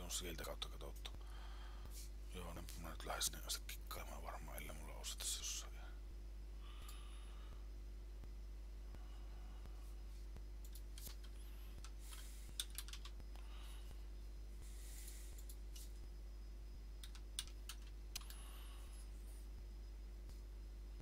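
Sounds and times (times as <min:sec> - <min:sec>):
low electrical hum: 0:00.0 - 0:21.0
keyboard keystrokes: 0:12.1 - 0:13.2, 0:17.0 - 0:18.4.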